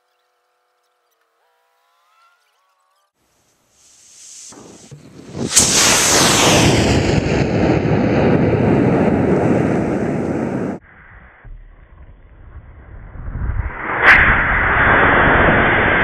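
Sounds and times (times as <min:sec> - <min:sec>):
rocket motor roaring: 0:04.0 - 0:10.8, 0:13.5 - 0:16.0
low rumble: 0:04.7 - 0:16.0.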